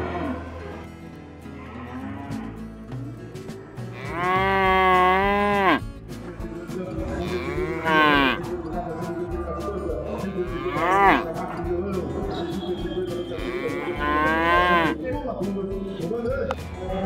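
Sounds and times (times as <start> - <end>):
cattle mooing: 1.6 - 2.6, 3.6 - 5.8, 7.1 - 8.4, 10.2 - 11.3, 13.4 - 15.0.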